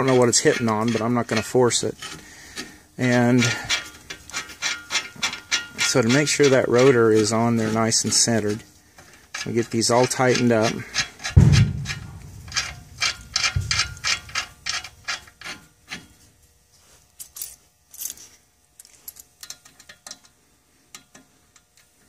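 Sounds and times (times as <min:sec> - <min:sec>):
lug bolts clicking: 0:09.3 - 0:15.6.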